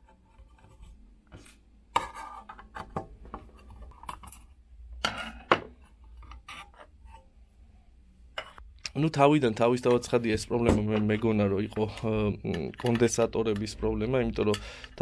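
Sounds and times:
screwdriver scraping and clicking: 10.9 - 13.8.

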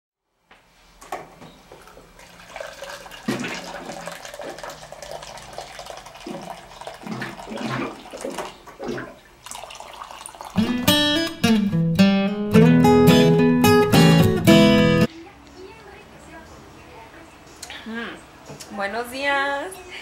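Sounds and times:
water running into a cup: 1.8 - 10.9.

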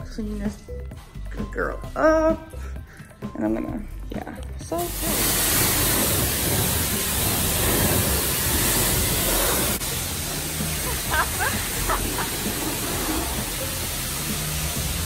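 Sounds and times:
high-pressure water spraying car: 4.8 - 15.0.

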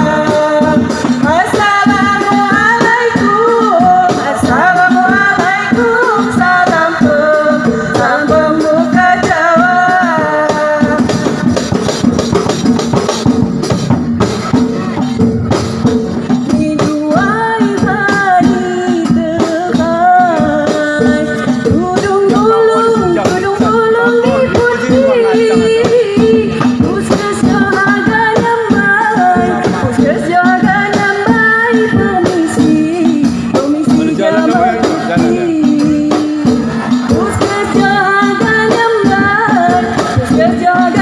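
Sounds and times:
frame drums: 0.0 - 41.0
person singing: 16.6 - 41.0.

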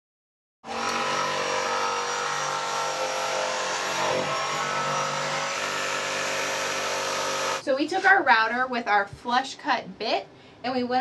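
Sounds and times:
electric router cutting plywood: 0.6 - 7.6.

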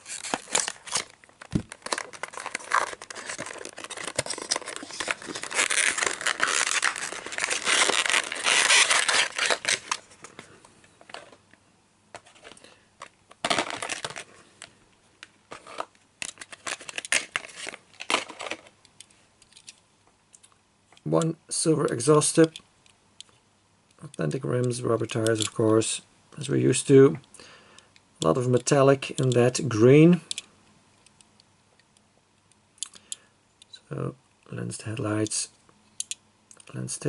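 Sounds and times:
plastic tray crinkling: 0.0 - 11.4, 12.2 - 18.7.

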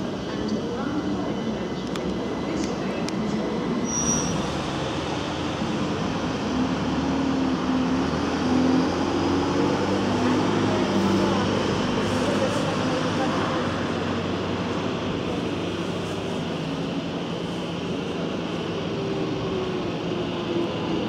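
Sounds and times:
road traffic noise: 0.0 - 21.0
bus driving past: 4.2 - 21.0.

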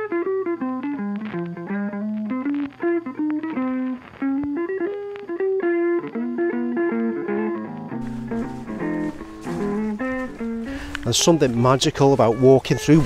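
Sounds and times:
plucked guitar melody: 0.0 - 13.0.

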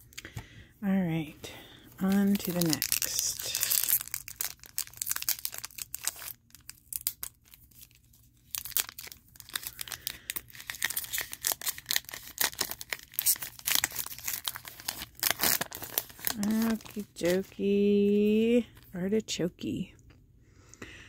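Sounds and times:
foil wrapper crackling: 2.0 - 18.2.

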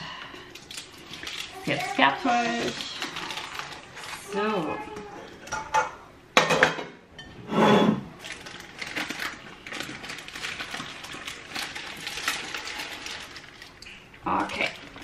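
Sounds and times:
baking paper rustling: 0.6 - 5.5, 8.2 - 15.0
scrape on plate: 7.5 - 8.1.

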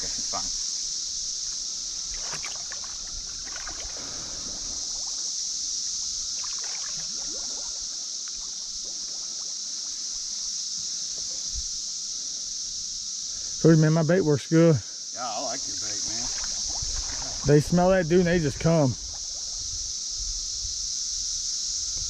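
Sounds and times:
creek water trickling: 0.0 - 10.6, 15.2 - 20.2
high-pitched insect chorus: 0.0 - 22.0.

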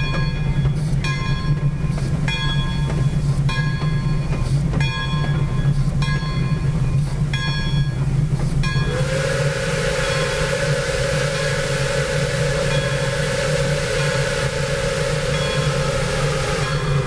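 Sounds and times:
locomotive bell ringing: 0.0 - 9.1, 9.9 - 17.0
steam locomotive rumble: 0.0 - 17.0
steam whistle blowing: 8.8 - 17.0.

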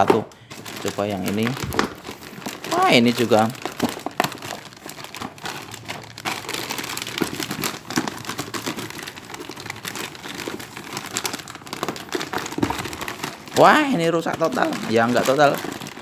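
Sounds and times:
packaging wrap crinkling: 0.0 - 16.0.

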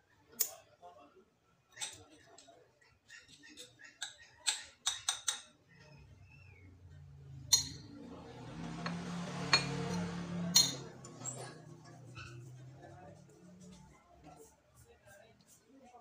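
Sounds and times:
knife tapping ceramic saucer: 4.0 - 5.5, 8.8 - 11.2
crockery and metal clinks: 7.3 - 12.5.

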